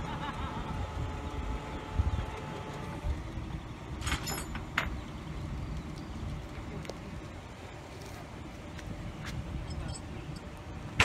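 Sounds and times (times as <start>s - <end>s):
truck engine rumbling: 0.0s - 11.0s
sharp metallic clanks: 9.6s - 11.0s.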